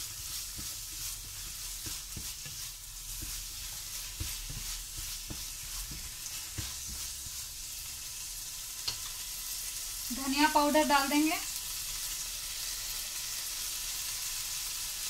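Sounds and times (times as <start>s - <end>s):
spatula scraping pan: 0.0s - 8.2s
frying sizzle: 0.0s - 15.0s.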